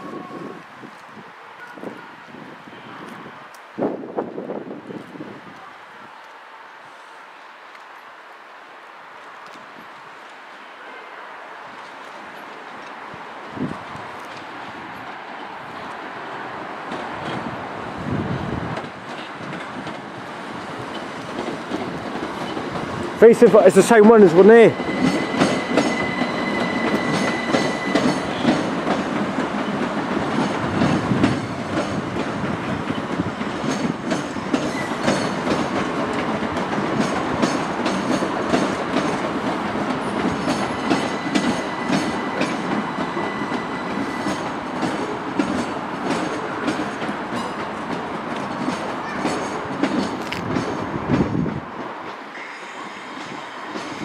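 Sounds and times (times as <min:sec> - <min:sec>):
train rumbling on rails: 0:00.0 - 0:06.1, 0:09.4 - 0:54.0
wheels clicking over rail joints: 0:18.6 - 0:52.4.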